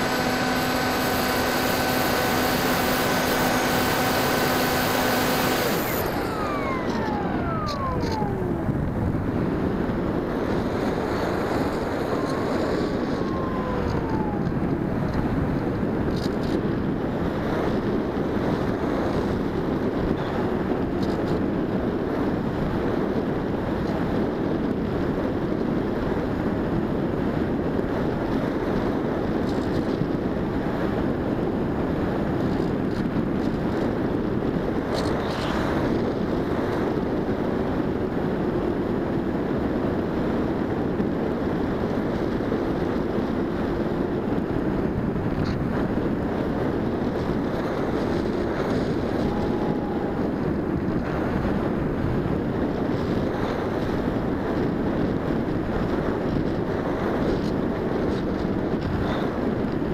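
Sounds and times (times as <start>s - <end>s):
electric motor hum: 0.0s - 20.6s, 46.8s - 52.3s
wind rushing over microphone: 0.0s - 59.9s.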